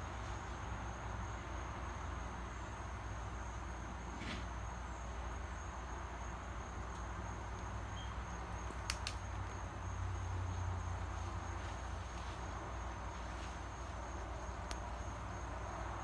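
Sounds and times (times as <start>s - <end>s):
sharp clicks: 8.7s - 9.2s.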